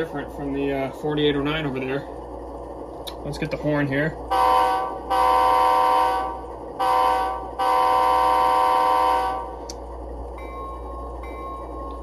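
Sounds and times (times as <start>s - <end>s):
locomotive horn through speaker: 4.3s - 9.6s.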